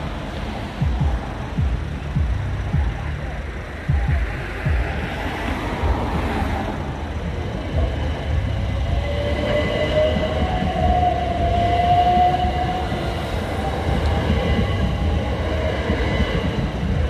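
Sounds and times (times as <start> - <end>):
train wheels rumbling on track: 0.0 - 17.0
train motor whine: 5.0 - 17.0.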